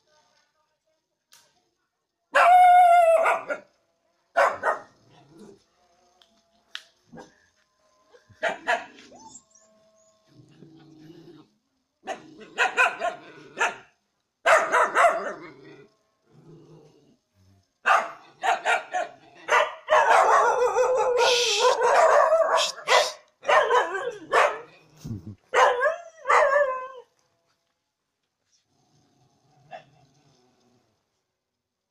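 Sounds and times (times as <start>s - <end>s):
dogs barking: 4.4s - 4.9s, 8.4s - 9.1s, 12.1s - 13.9s, 14.5s - 15.4s, 17.9s - 24.7s, 25.5s - 26.8s.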